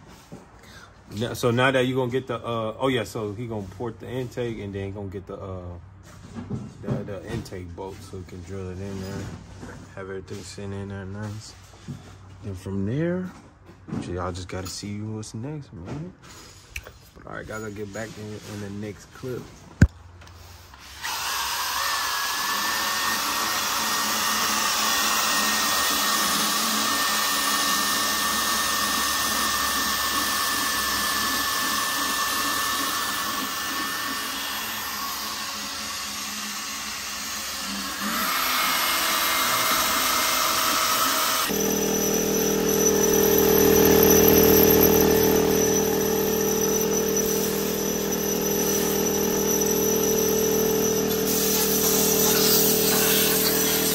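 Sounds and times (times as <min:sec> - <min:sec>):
power tool whining: 0:20.2 - 0:53.9.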